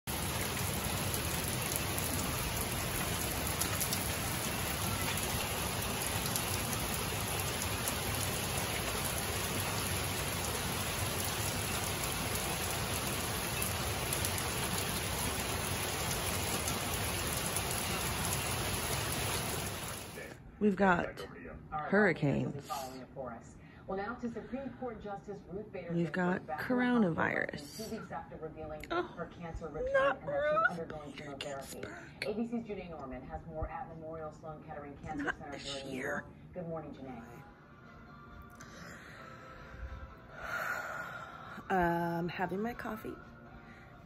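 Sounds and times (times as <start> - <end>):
rain on wooden deck and trees: 0.0 - 20.4
raindrops ticking: 0.1 - 20.3.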